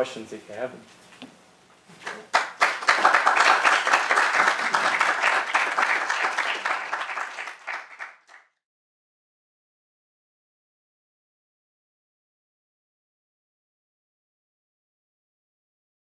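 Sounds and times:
audience applauding: 2.0 - 8.6.

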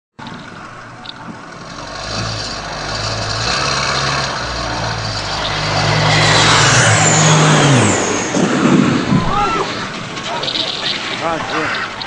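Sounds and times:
vehicle engine idling: 0.2 - 7.5
rushing noise: 1.6 - 12.0.

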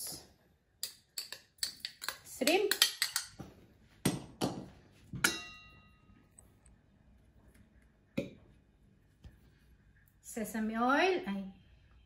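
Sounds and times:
metal spoon clinking against bowl: 0.8 - 3.4, 5.2 - 6.0.

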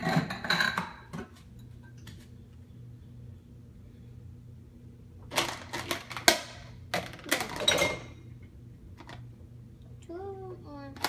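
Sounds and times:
dishes clattering in dishwasher rack: 0.0 - 1.3, 7.0 - 8.2.

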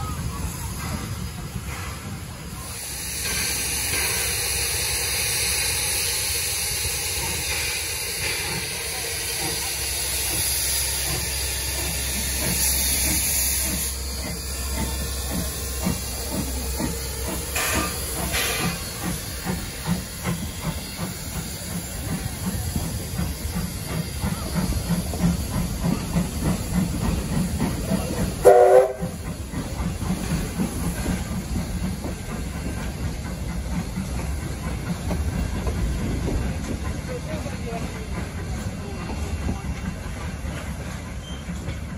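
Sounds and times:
locomotive exhaust beat: 0.0 - 41.9
steam hissing: 0.0 - 41.9
steam whistle blast: 28.4 - 29.2.

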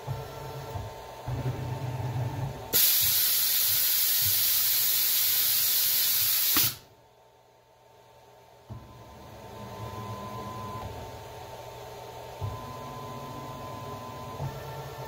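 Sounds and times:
motors humming and whining: 0.0 - 2.8, 8.7 - 15.0
compressed air blast hissing: 2.7 - 6.8.

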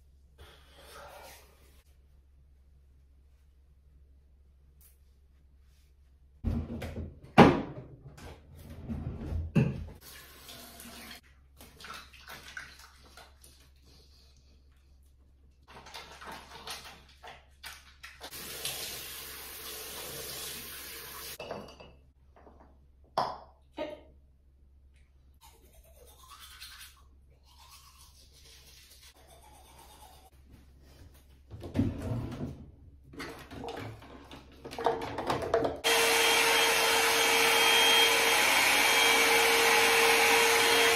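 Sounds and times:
teeth-brushing scrubbing: 25.4 - 30.4.

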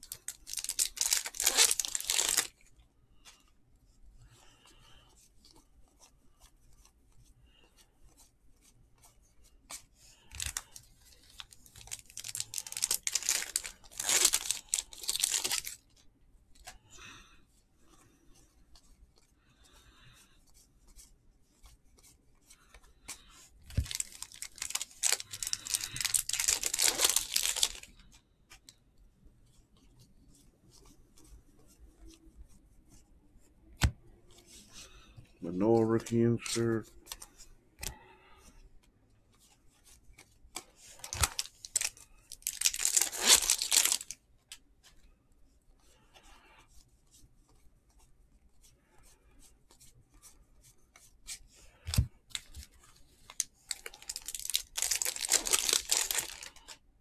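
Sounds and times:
wrapper tearing and crinkling: 0.0 - 2.5, 10.4 - 15.8, 23.7 - 27.9, 41.0 - 44.2, 53.3 - 56.7.

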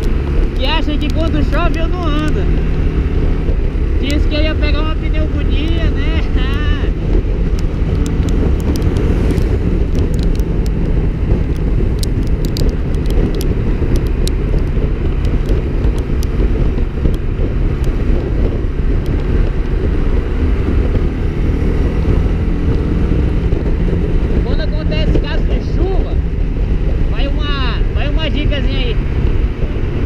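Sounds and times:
motorcycle engine running: 0.0 - 30.0
wind rushing over camera: 0.0 - 30.0
light ticks: 6.4 - 16.4, 19.0 - 19.8.

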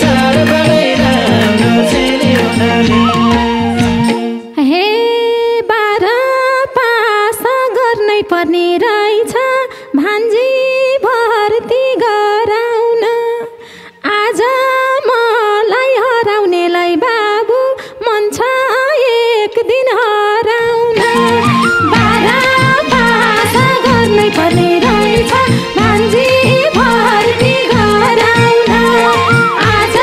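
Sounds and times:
person singing ornamented melody: 0.0 - 5.7, 20.8 - 30.0.

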